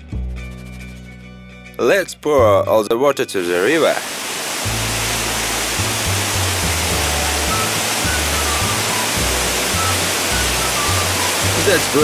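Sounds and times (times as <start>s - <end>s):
background music: 0.0s - 12.0s
water pouring from tank: 3.4s - 12.0s.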